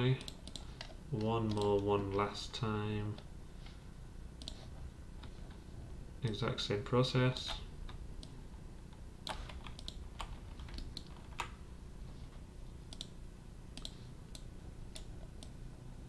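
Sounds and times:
keyboard and mouse clicking: 0.2 - 2.2, 4.4 - 4.6, 9.2 - 11.6, 12.9 - 13.2, 13.8 - 15.6.

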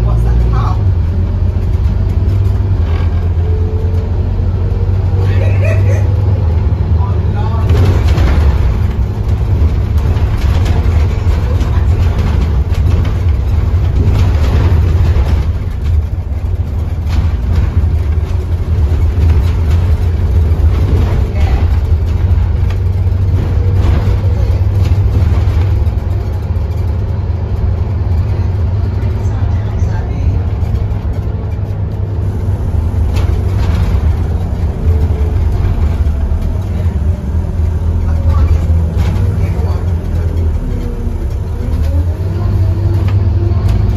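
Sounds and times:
bus diesel engine droning: 0.0 - 43.9
road noise: 0.0 - 43.9
bodywork rattles: 5.7 - 43.9.

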